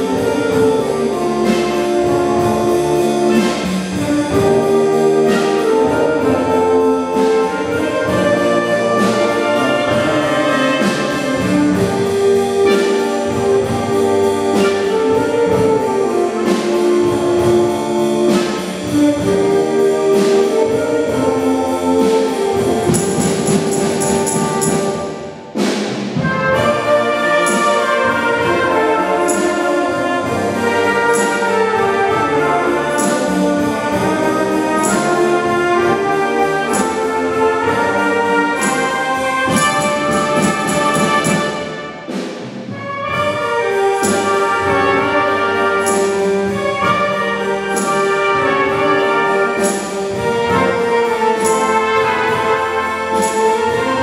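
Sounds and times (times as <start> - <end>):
wind band playing blues: 0.0 - 54.0.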